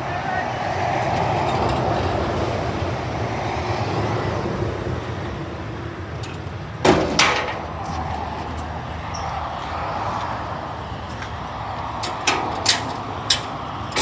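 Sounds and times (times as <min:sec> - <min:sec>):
engine running: 0:00.0 - 0:14.0
sharp bangs: 0:06.8 - 0:07.7.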